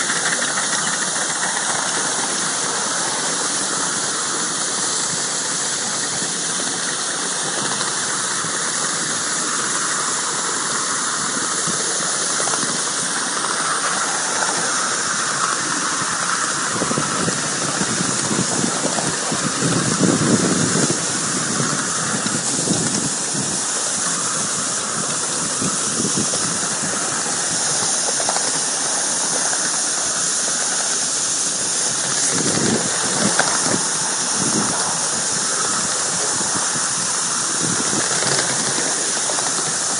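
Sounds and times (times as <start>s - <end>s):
hiss of escaping steam: 0.0s - 39.9s
locomotive exhaust beats: 0.0s - 39.9s
steam locomotive running: 0.0s - 39.9s.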